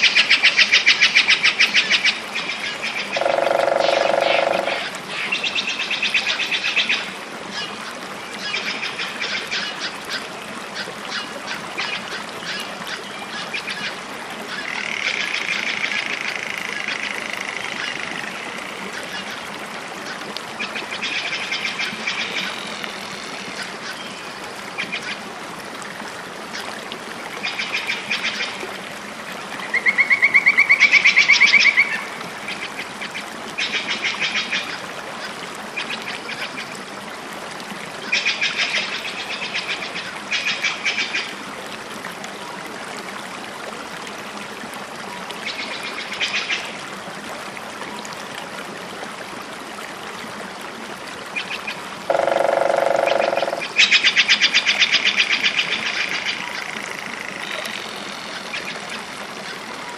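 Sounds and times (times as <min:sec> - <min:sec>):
deep animal call: 0:03.2 - 0:04.9, 0:52.1 - 0:53.6
rapidly pulsed animal trills: 0:03.2 - 0:04.9, 0:52.1 - 0:53.8.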